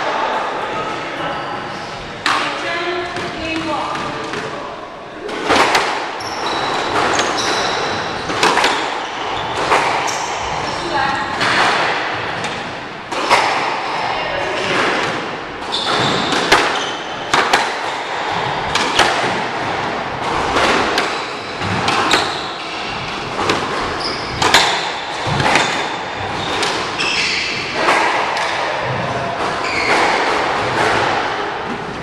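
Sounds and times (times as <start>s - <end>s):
squash ball cracking off walls: 5.3s - 10.4s, 11.3s - 13.9s, 14.5s - 27.0s
sneakers squeaking on hardwood: 5.4s - 31.9s.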